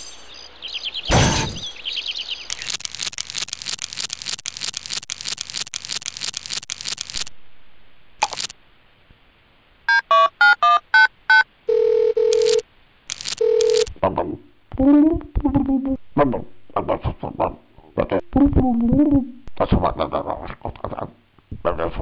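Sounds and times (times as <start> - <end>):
rapid scratching strokes: 2.5 - 7.3, 8.2 - 8.5
telephone keypad beeps: 9.9 - 12.6, 13.4 - 13.9
telephone ringing tone: 9.9 - 12.6, 13.4 - 13.9.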